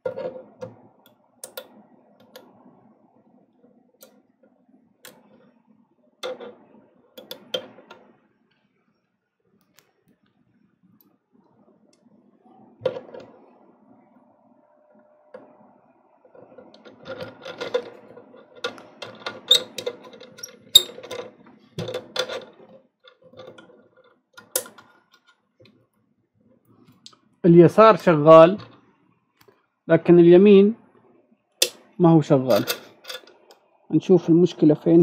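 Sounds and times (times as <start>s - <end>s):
metal clicks and scrapes: 16.3s - 25.4s, 32.5s - 33.6s.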